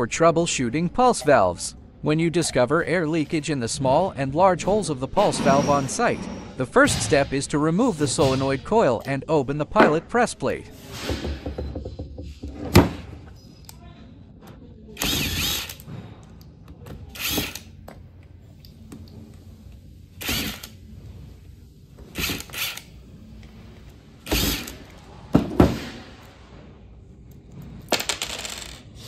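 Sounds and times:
cordless power driver: 17.2 - 17.6.

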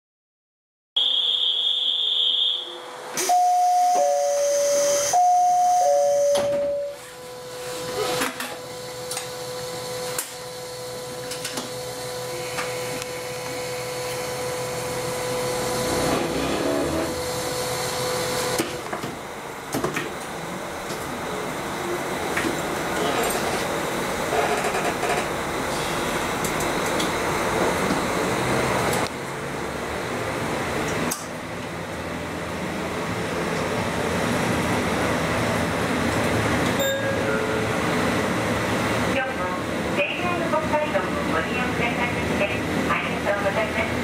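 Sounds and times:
two-note falling chime: 36.8 - 37.8.

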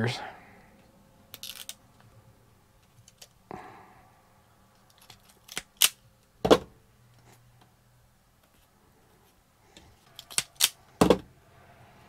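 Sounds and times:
wire stripper clicking and snapping: 4.8 - 6.0, 10.1 - 10.8.

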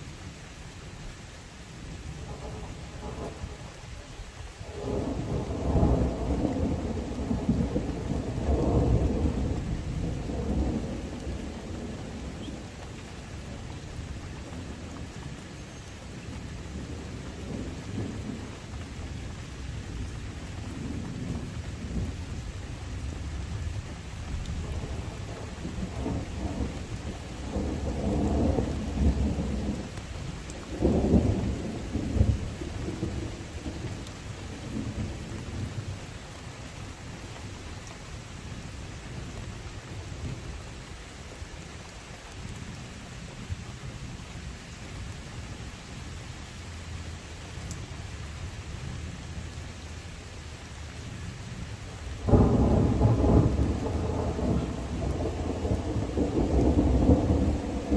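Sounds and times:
steady rain: 0.0 - 57.9
thunder rumbling: 2.1 - 36.0, 52.2 - 57.9.

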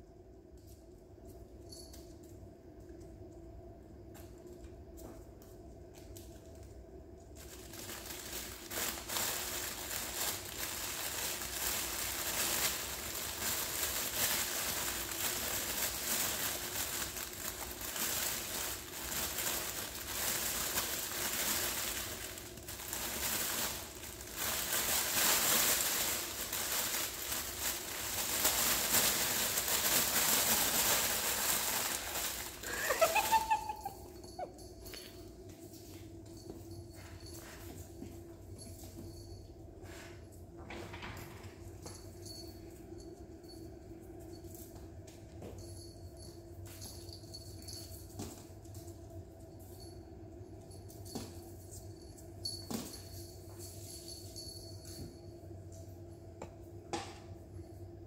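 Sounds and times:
fabric tunnel rustling and crackling: 7.4 - 33.6.

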